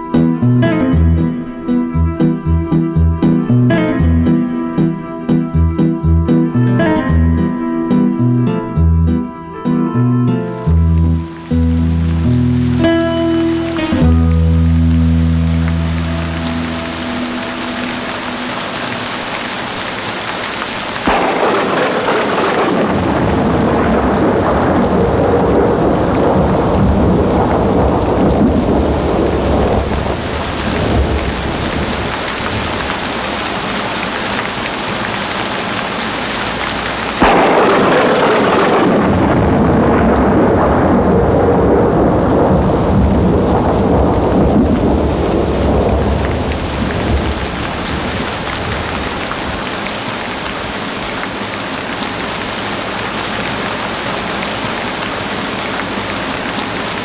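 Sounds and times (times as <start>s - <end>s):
steady rain: 0.0s - 57.0s
thunder rolling: 21.0s - 33.3s, 37.2s - 49.7s.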